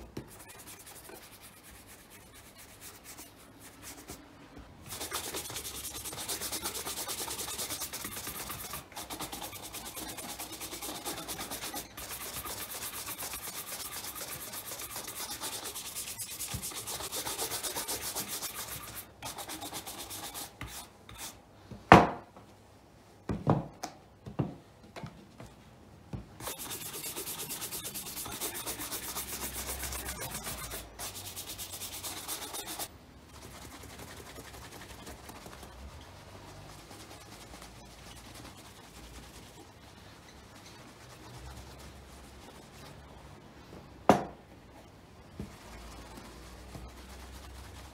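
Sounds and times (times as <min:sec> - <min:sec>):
buffing pad rubbing: 0:00.0 - 0:04.2, 0:04.9 - 0:21.3, 0:26.4 - 0:43.2, 0:45.4 - 0:47.9
shoe brush strokes on leather: 0:26.4 - 0:32.9, 0:45.6 - 0:47.9
shoes knocking on table: 0:44.1 - 0:44.4.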